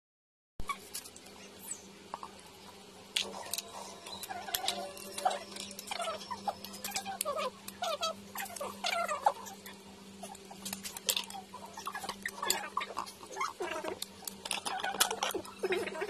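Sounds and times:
crab shell cracking: 10.6s - 15.8s.

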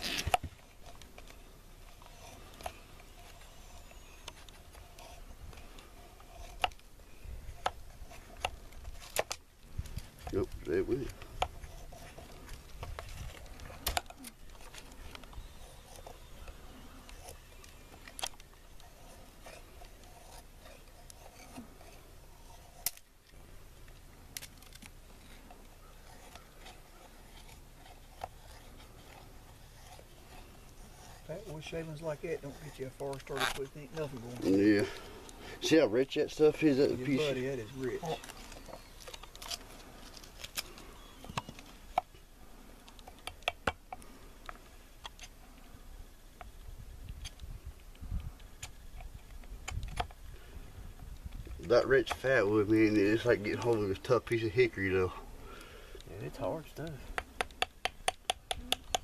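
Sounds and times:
knife scraping wooden stick: 0.0s - 42.2s.

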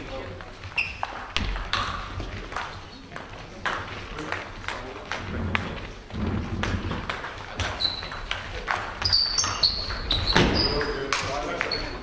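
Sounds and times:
shoes squeaking on floor: 0.4s - 3.2s, 6.4s - 12.0s.

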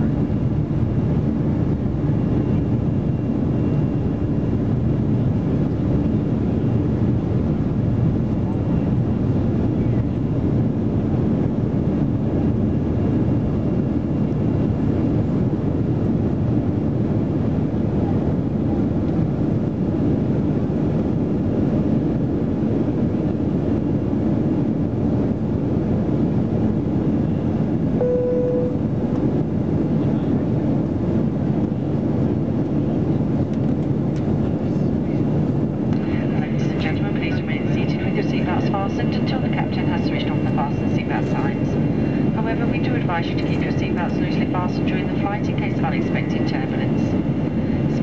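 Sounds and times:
airplane cabin rumble: 0.0s - 48.0s
short single tone: 28.0s - 29.0s.

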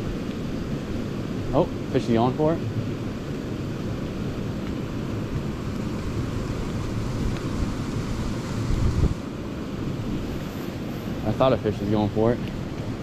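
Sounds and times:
creek water running: 0.0s - 13.0s
wind rumbling on microphone: 0.0s - 13.0s.

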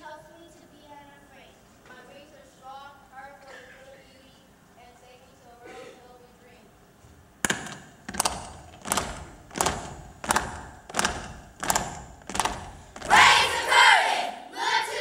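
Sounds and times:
children body percussion hits: 7.4s - 13.8s
children shouting chant: 13.1s - 15.0s.

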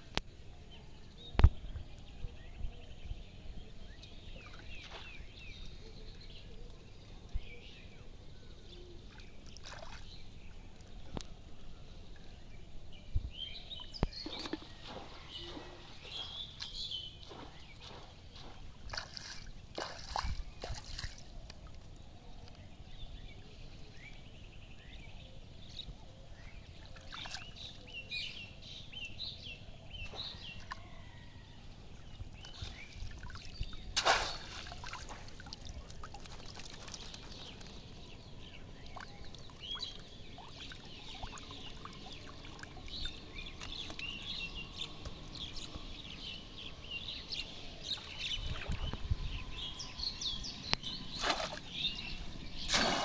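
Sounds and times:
birds chirping: 0.3s - 53.0s
water splashing and trickling: 3.9s - 6.4s, 8.9s - 12.6s, 13.2s - 23.2s, 26.4s - 28.2s, 29.9s - 49.3s, 50.7s - 53.0s
sharp splash: 9.6s - 10.1s, 18.9s - 21.3s, 33.3s - 37.6s, 51.1s - 51.8s, 52.6s - 53.0s.

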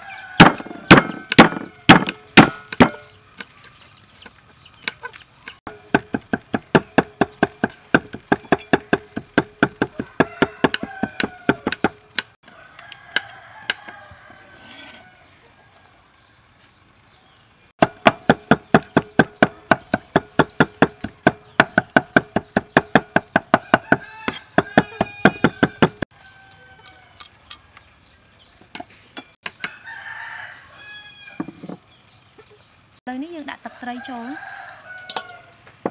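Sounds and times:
cleavers chopping on wooden block: 0.4s - 3.5s, 4.9s - 12.4s, 17.8s - 26.1s
chickens clucking: 3.0s - 5.6s.

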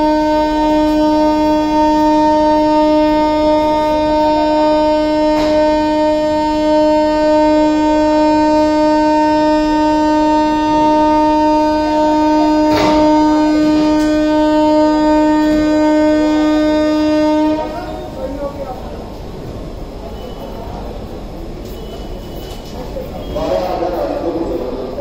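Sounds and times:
train horn long steady note: 0.0s - 18.6s
passenger coaches rolling by: 0.0s - 25.0s.

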